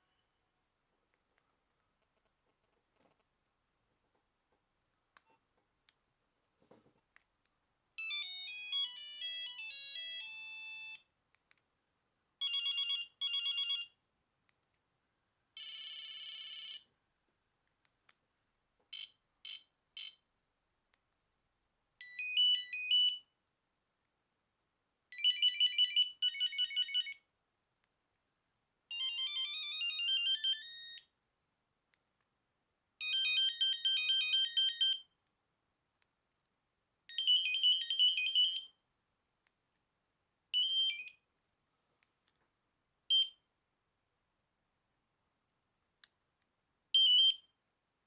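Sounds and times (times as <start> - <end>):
mobile phone ringtone beeps: 8.0 - 11.1, 22.0 - 23.2, 25.2 - 27.2, 28.9 - 31.1, 33.0 - 35.1, 37.1 - 38.7, 40.6 - 41.1.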